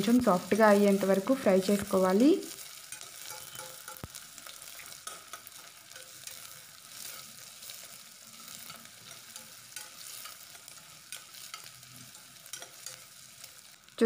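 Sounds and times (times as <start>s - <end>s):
vegetables sizzling in oil: 0.0s - 14.0s
metal spoon scraping pot: 2.9s - 4.1s.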